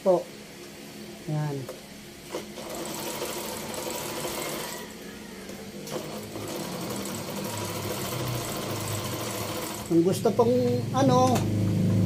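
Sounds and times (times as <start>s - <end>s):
sewing machine stitching: 2.3s - 4.7s, 5.8s - 10.1s.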